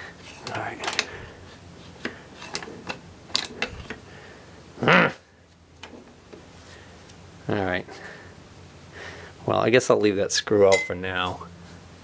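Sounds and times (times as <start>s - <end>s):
man grunting: 4.8s - 5.2s.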